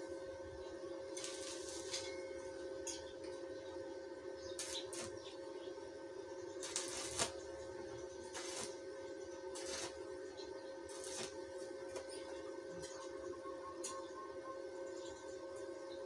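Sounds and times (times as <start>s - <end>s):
steady hum: 0.0s - 16.0s
welding arc crackling: 1.2s - 2.1s, 4.6s - 5.2s, 6.6s - 7.5s, 8.2s - 8.8s, 9.5s - 10.1s, 10.8s - 12.1s.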